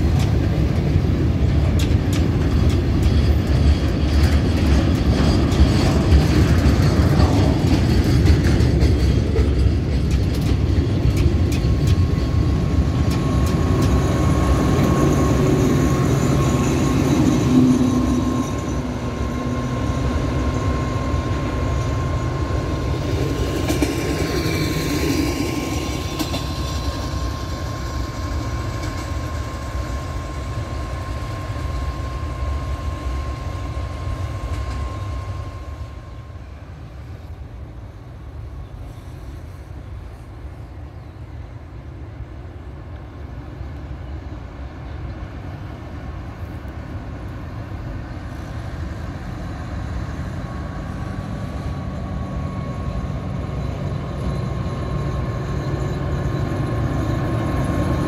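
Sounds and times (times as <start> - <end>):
train wheels clicking over rails: 0.0 - 35.1
diesel locomotive running: 0.0 - 58.0
thin steady whine: 11.1 - 41.4, 45.9 - 58.0.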